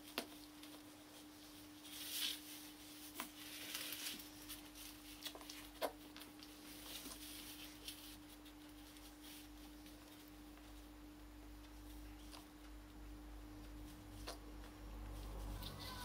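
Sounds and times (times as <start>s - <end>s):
puppies rustling and clicking: 0.0s - 10.9s
steady low hum: 0.0s - 16.0s.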